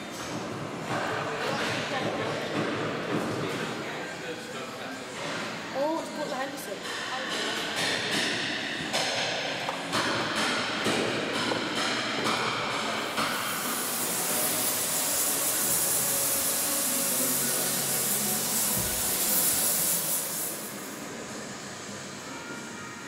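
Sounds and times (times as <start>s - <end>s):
pressurised gas hissing: 12.5s - 23.0s.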